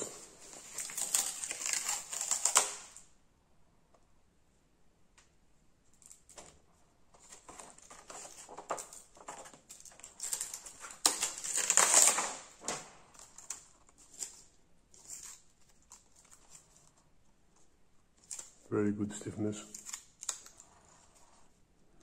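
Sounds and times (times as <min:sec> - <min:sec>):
plastic film and paper crinkling: 0:00.0 - 0:03.0, 0:07.2 - 0:21.6.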